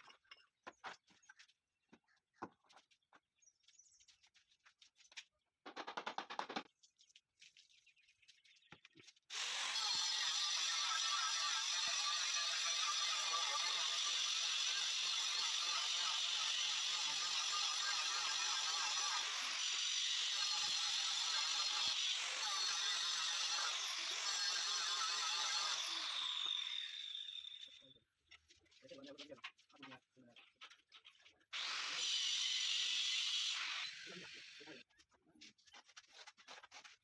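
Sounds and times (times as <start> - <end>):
stone cutter grinding granite: 9.3 - 27.9, 31.5 - 37.0.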